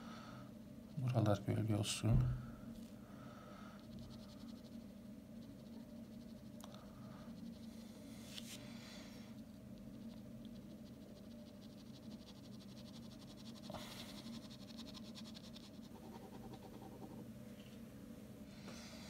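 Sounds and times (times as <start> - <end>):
pen scratching on paper: 10.0 - 17.2.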